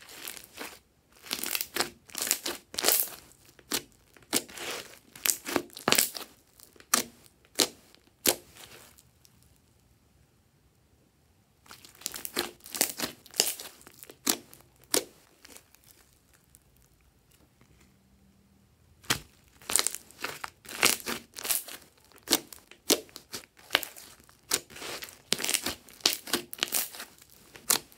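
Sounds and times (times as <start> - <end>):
slime clicking and popping: 20.7 - 27.0.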